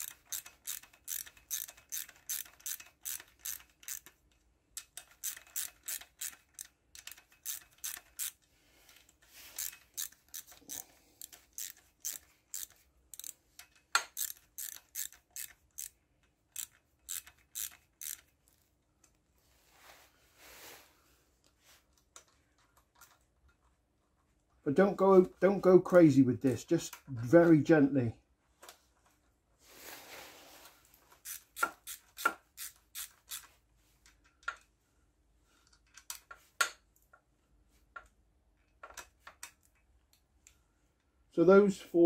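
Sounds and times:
socket ratchet clicking: 0.0s - 8.4s, 9.6s - 18.3s, 31.2s - 33.5s.

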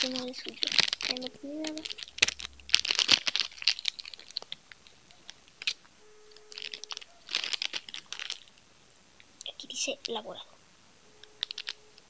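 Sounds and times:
plastic wrapper crinkling: 0.0s - 8.7s, 11.2s - 12.0s.

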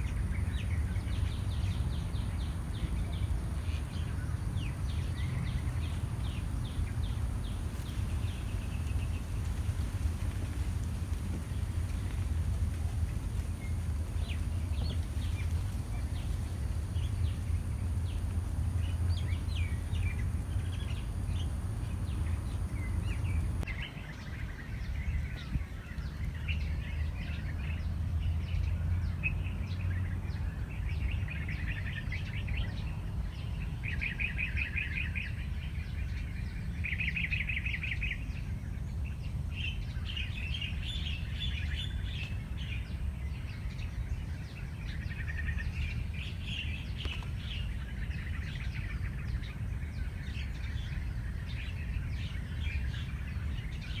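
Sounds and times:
songbirds chirping: 0.0s - 54.0s
steady low rumble: 0.0s - 54.0s.

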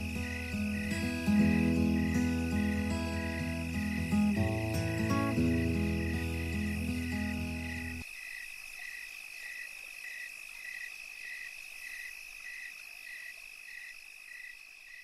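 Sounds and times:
background music: 0.0s - 8.0s
frog calls: 0.0s - 15.0s
insects trilling: 0.0s - 15.0s.

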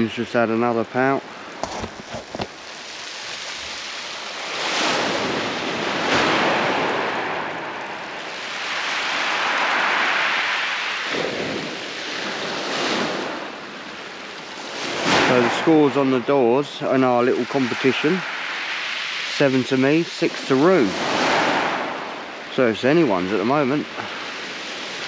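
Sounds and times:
surf on shingle beach: 0.0s - 25.0s
wind on microphone: 1.4s - 19.2s.

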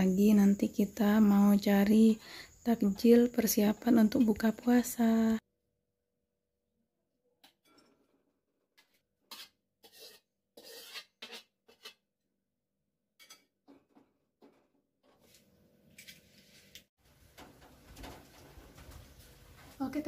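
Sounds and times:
metal spatula scraping a wok: 8.8s - 12.0s.

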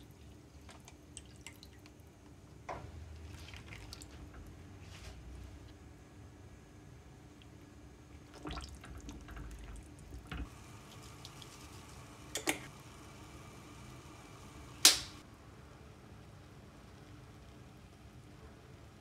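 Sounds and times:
liquid bubbling in pot: 7.2s - 13.5s.

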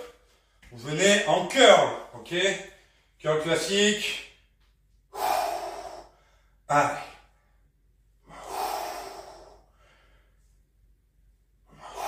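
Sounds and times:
man breathing out hard: 5.1s - 6.6s, 8.2s - 10.5s, 11.7s - 12.0s.

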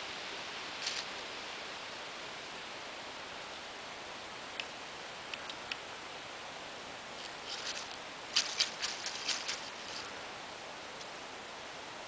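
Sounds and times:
steady hiss: 0.0s - 12.0s
dry leaves crackling: 0.7s - 1.2s, 7.2s - 10.3s.

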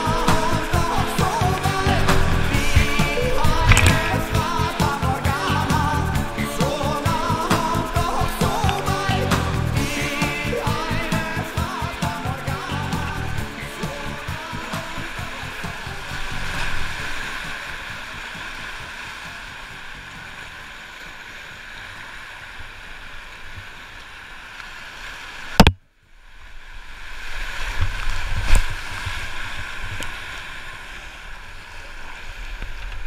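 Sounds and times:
low rumbles: 0.0s - 18.3s
whitewater rushing: 0.0s - 25.7s
sharp click: 3.5s - 4.1s.

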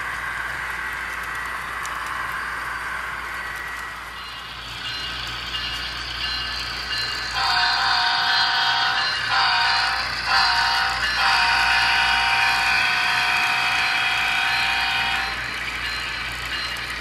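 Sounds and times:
model locomotive chime horn: 7.3s - 15.5s.

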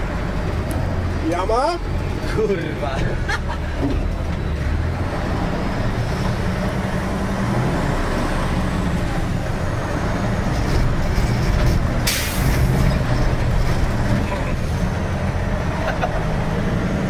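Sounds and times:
truck engine under load: 0.0s - 17.0s
short air hiss: 12.1s - 12.5s.

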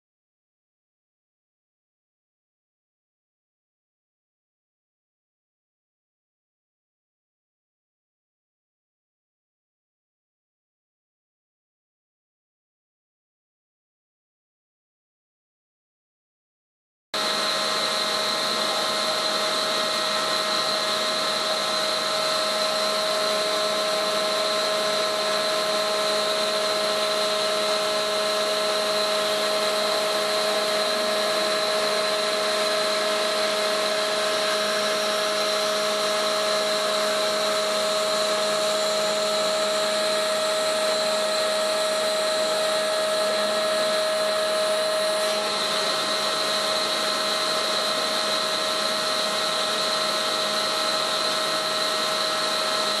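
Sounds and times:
winch mechanical whine: 17.2s - 53.0s.

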